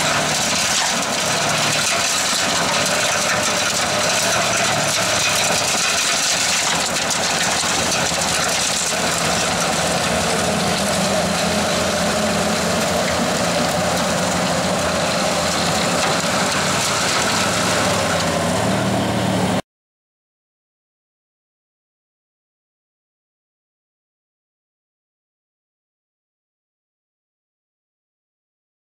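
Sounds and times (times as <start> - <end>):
diesel engine under load: 0.0 - 19.6
snowblower rushing hiss: 0.0 - 19.6.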